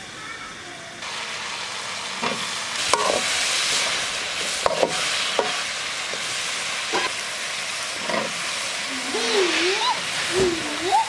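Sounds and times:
chicken sizzling in oil: 1.0 - 11.0
metal spatula scraping a wok: 2.2 - 6.3.

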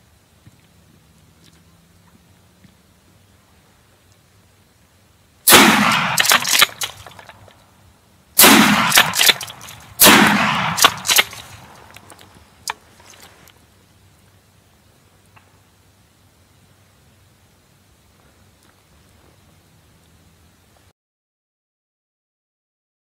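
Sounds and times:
shotgun shots echoing: 5.5 - 7.2, 8.4 - 11.9
sharp click: 6.1 - 7.4, 8.9 - 12.8.

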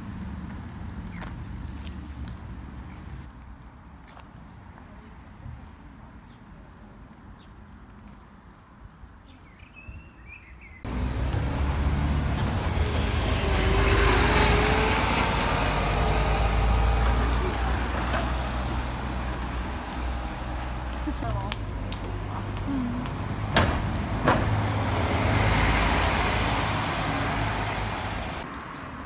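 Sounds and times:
road traffic passing: 0.0 - 6.9, 10.8 - 29.0
small birds chirping: 6.2 - 10.9.

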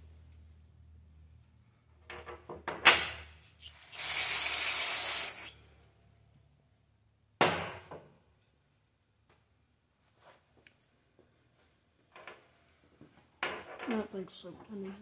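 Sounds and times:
aerosol spray hiss: 3.7 - 5.6.

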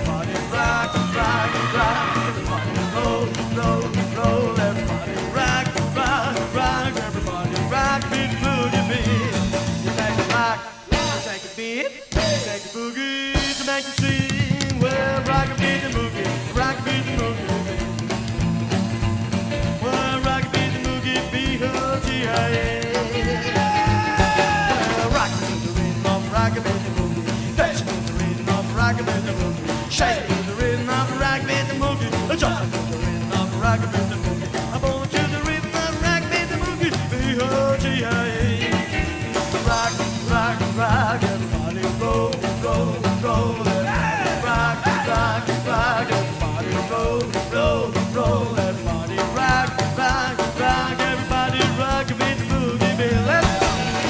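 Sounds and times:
rockabilly band playing: 0.0 - 54.0
upright bass: 0.0 - 54.0
electric guitar: 14.2 - 54.0.

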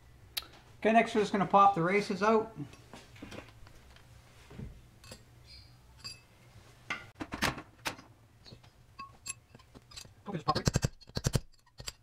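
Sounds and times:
steel tools clinking: 5.0 - 5.3, 6.0 - 6.3, 9.0 - 12.0.

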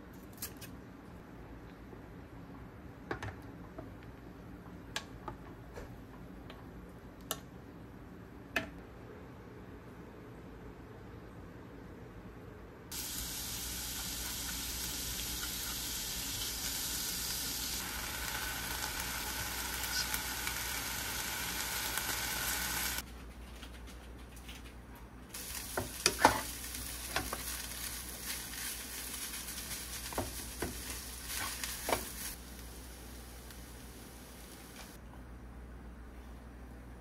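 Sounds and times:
food sizzling in a frying pan: 12.9 - 23.0, 25.4 - 35.0.

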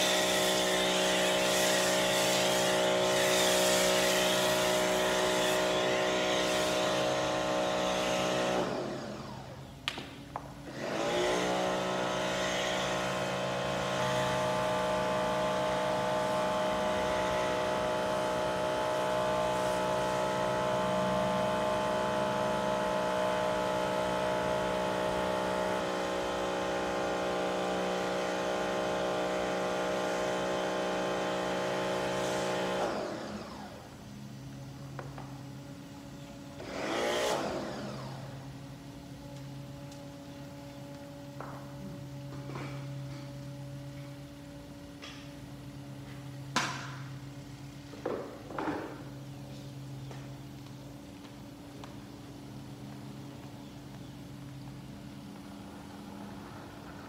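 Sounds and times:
pressure washer running: 0.0 - 57.0.

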